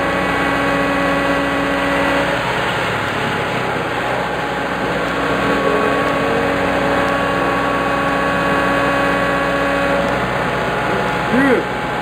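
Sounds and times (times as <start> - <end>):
construction machine engine idling: 0.0 - 12.0.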